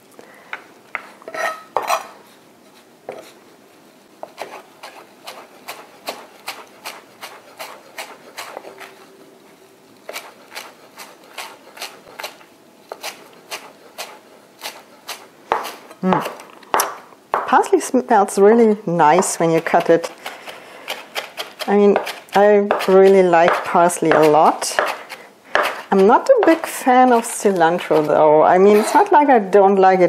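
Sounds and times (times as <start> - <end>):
knife chopping on cutting board: 4.2 - 8.9, 10.1 - 17.6, 19.2 - 27.2.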